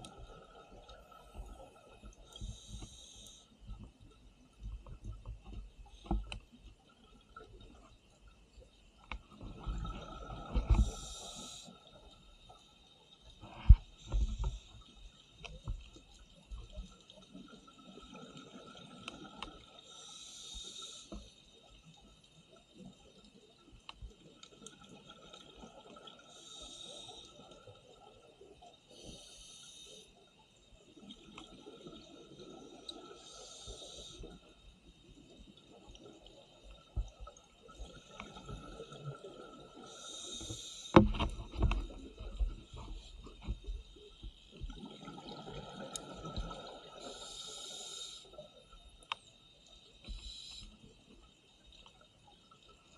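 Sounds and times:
underwater bubbles: 0.0s - 52.9s
scuba regulator breathing: 2.3s - 3.6s, 10.7s - 11.8s, 19.9s - 21.4s, 26.3s - 27.4s, 28.9s - 30.2s, 33.2s - 34.5s, 39.8s - 41.2s, 46.9s - 48.4s, 50.0s - 50.9s.

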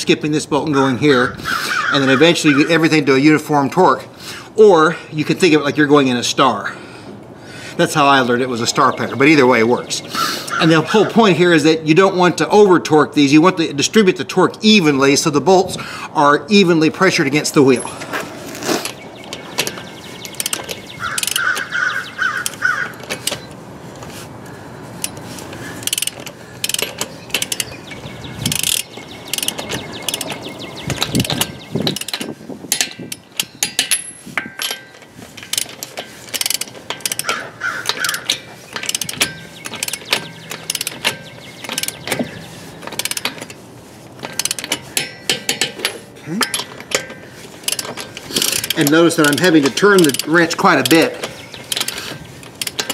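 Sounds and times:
torque wrench ratchet clicks: 18.8s - 23.5s, 25.0s - 43.6s, 44.2s - 52.9s.

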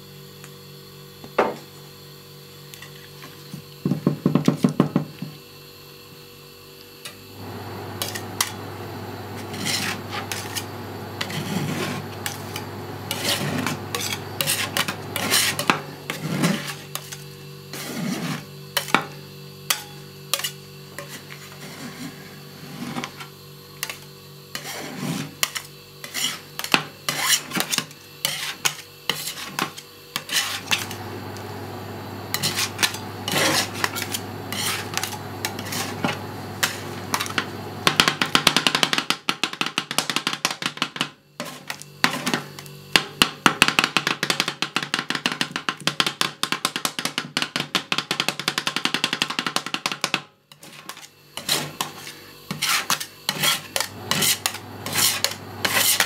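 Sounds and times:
metal spatulas chopping and scraping: 8.0s - 8.6s, 9.3s - 19.1s, 19.7s - 21.6s, 24.6s - 31.0s, 32.3s - 38.0s, 50.5s - 56.0s.

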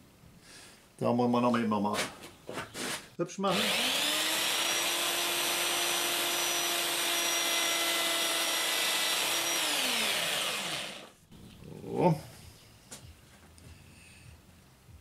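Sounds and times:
electric power tool whining: 3.5s - 11.2s.

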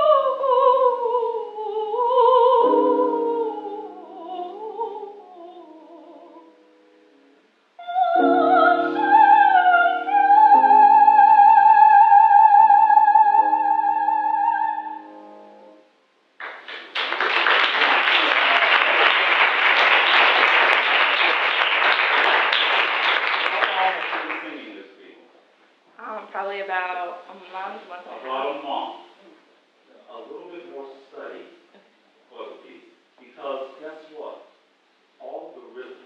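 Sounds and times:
woman singing operatically: 0.0s - 6.6s, 7.8s - 15.2s
piano accompaniment: 8.2s - 11.1s
applause: 16.4s - 24.7s.

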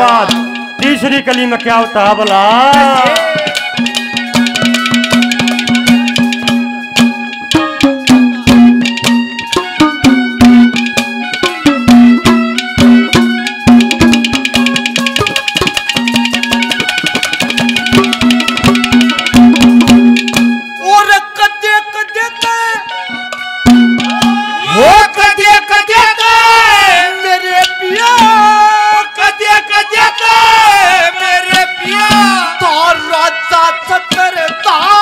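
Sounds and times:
fast hand drum strokes: 0.0s - 20.8s
harmonium melody over drone: 0.0s - 35.0s.

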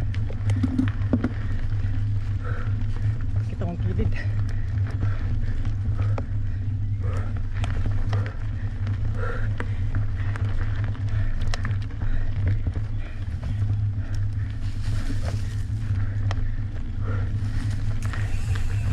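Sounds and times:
bike clicks and rattles: 0.0s - 18.9s
mountain bike rumbling down trail: 0.0s - 18.9s.

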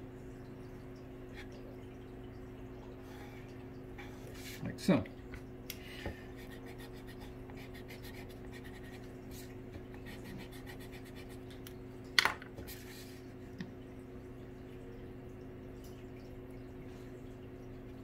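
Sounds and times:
steady low hum: 0.0s - 18.0s
pencil scratching on wood: 10.1s - 11.4s.

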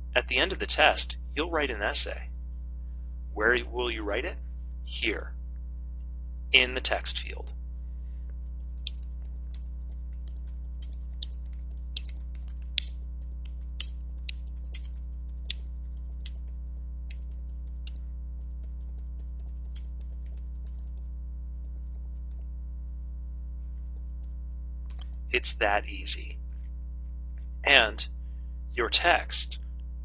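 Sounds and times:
steady low hum: 0.0s - 30.0s
typing on computer keyboard: 8.6s - 21.0s.

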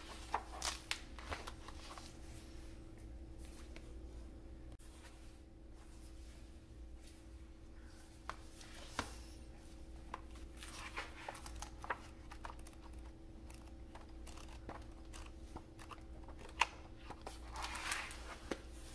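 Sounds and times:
book pages flipping: 0.0s - 2.2s, 8.2s - 9.4s, 10.0s - 18.9s
low steady hum: 0.0s - 18.9s.

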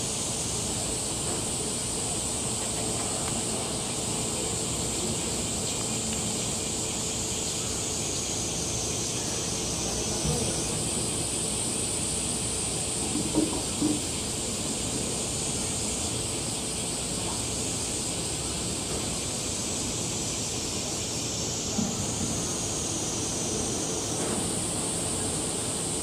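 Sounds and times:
steady background hiss: 0.0s - 26.0s
soft knock: 13.0s - 14.1s.

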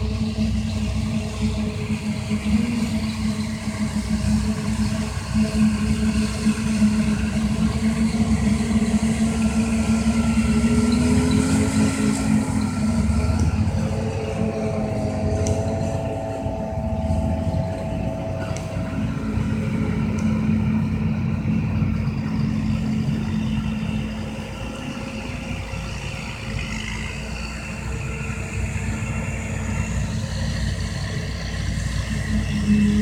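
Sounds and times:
harvester engine hum: 0.0s - 33.0s
high whine: 0.0s - 33.0s.

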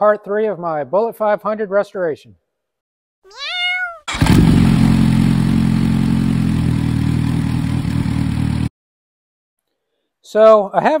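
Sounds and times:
motorcycle engine running: 4.1s - 8.7s.

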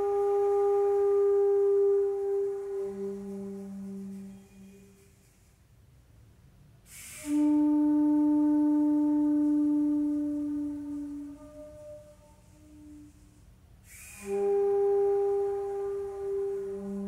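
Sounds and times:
flute playing a low note: 0.0s - 5.5s, 6.9s - 17.0s
air hissing: 6.8s - 17.0s.

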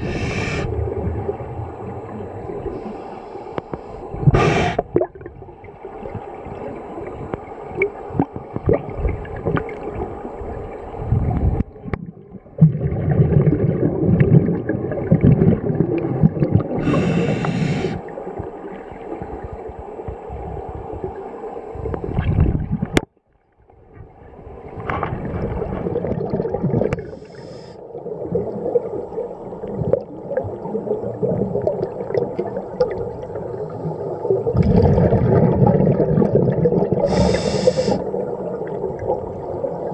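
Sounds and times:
underwater regulator breathing bubbles: 0.0s - 0.8s, 4.2s - 5.0s, 16.6s - 18.0s, 34.6s - 38.1s
brief hiss: 37.1s - 38.0s.

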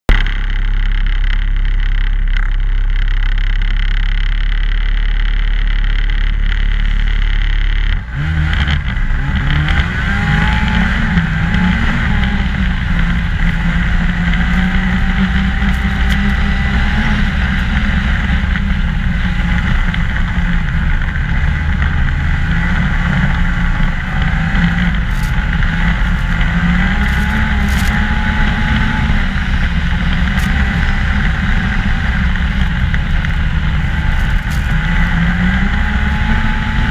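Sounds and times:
snowmobile engine running: 0.1s - 36.9s.

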